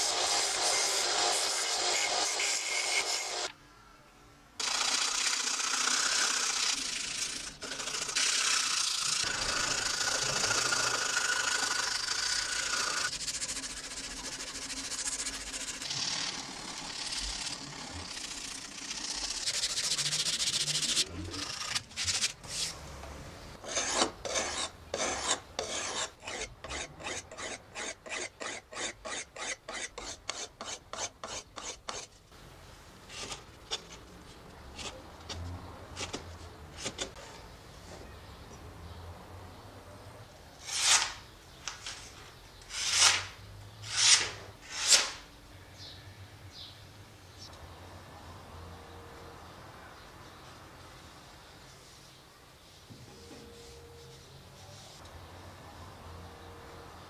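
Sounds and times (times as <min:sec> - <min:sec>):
sandpaper rubbing on wood: 0:10.2 - 0:22.7, 0:23.7 - 0:32.1, 0:42.7 - 0:45.2.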